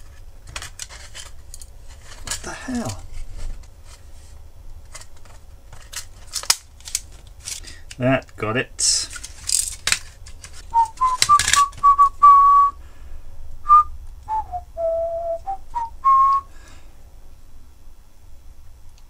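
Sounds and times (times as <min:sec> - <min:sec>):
plastic case clicks: 0:09.2 - 0:11.8
person whistling a tune: 0:10.7 - 0:12.8, 0:13.6 - 0:16.5.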